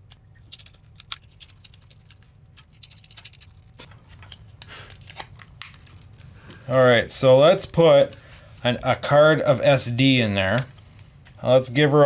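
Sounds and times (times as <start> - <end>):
plastic parts scratching: 0.0 - 4.4.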